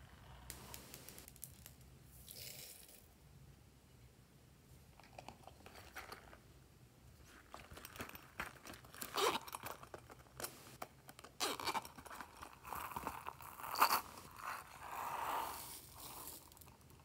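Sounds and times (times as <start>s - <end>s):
zipper being pulled open: 9.0s - 9.7s, 11.4s - 11.9s, 12.6s - 16.5s.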